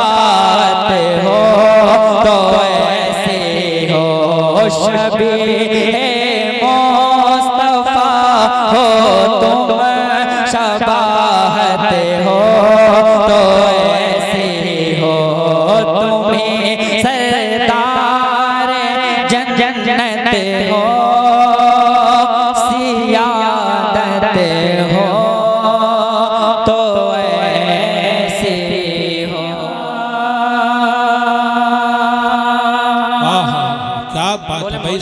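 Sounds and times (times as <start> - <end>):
man singing ornamented notes: 0.0 - 35.0.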